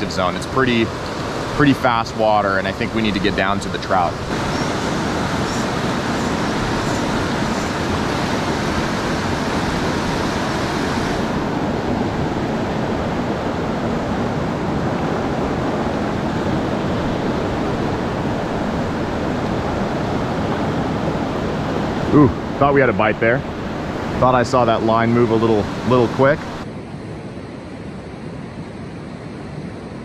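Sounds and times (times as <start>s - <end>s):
whitewater rapids rushing: 0.0s - 13.4s.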